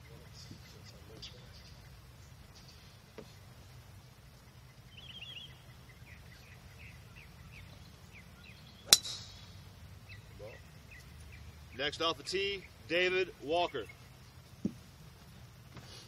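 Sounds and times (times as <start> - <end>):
birds chirping: 0.0 - 16.0
golf club striking ball: 8.8 - 9.6.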